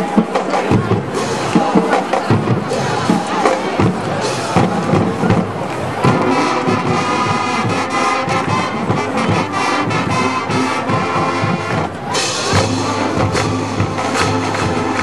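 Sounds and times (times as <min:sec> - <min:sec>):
marching band brass: 0:00.0 - 0:15.0
steady drum beat: 0:00.0 - 0:15.0.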